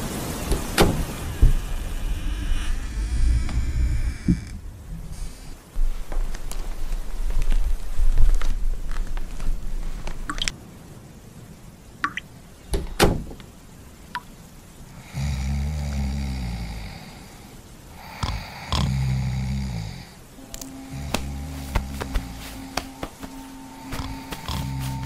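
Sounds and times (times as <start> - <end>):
low rumble: 0.5 - 9.9, 20.2 - 25.0
man snoring: 1.3 - 4.6, 15.0 - 25.0.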